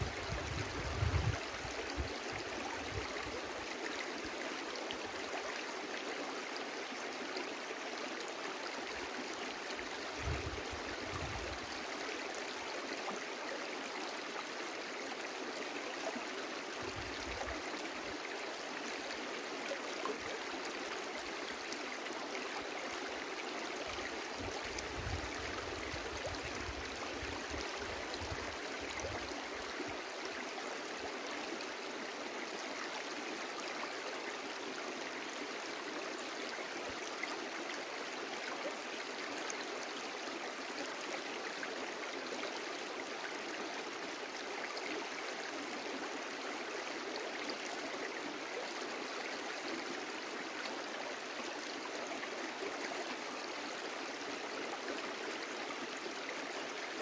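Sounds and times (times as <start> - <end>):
brook water babbling: 0.0 - 57.0.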